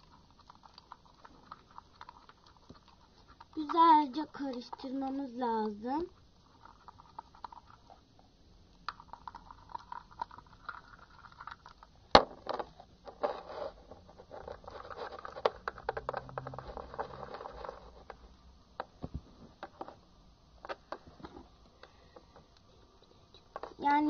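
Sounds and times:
pen stirring sticky slime: 0:00.0 - 0:08.0, 0:14.5 - 0:18.0.

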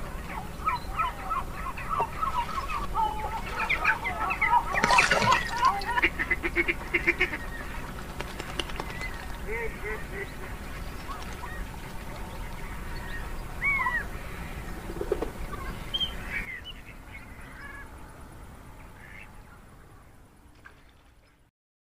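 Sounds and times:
ducks quacking: 0:00.0 - 0:16.5
low background noise: 0:00.0 - 0:21.5.

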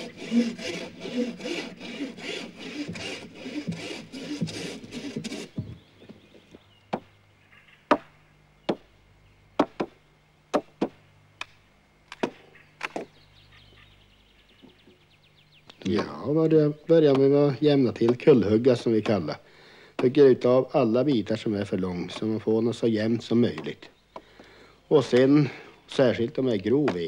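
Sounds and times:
handsaw cutting log: 0:00.0 - 0:05.8.

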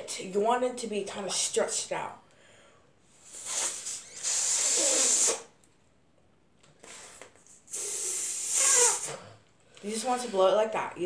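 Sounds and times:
breath hissing into balloon: 0:03.1 - 0:05.6, 0:06.8 - 0:09.4.

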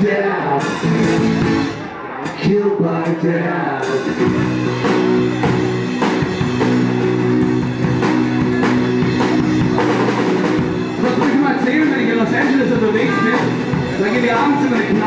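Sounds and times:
drum kit steady beat: 0:03.8 - 0:15.0
guitar sustained chords: 0:04.0 - 0:14.4.

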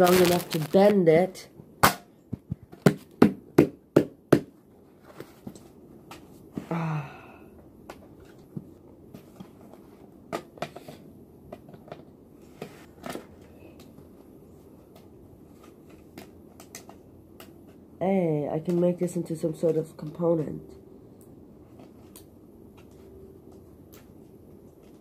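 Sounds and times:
person grunting: 0:06.6 - 0:07.4.

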